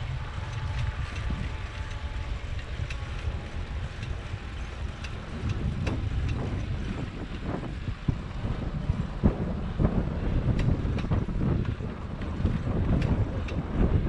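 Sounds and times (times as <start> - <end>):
wind buffeting microphone: 0.0 - 14.0
faint ticks: 0.3 - 6.7.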